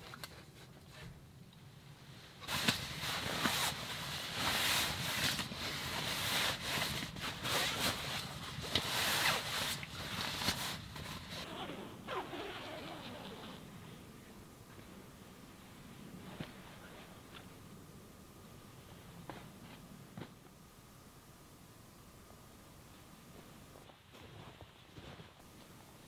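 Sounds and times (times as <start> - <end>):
sleeping bag fabric rustling: 2.4 - 13.6.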